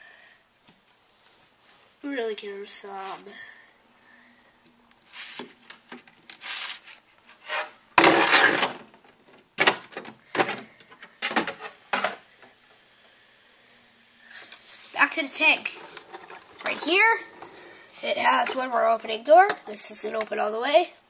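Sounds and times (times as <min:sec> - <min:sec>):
plastic toy scraping: 0:06.4 - 0:08.8, 0:14.6 - 0:19.0.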